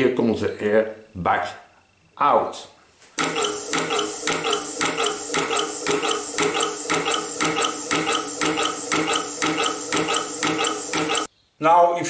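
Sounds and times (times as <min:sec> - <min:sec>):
compressed-air engine running: 0:03.2 - 0:11.3
steady tone: 0:03.2 - 0:11.3.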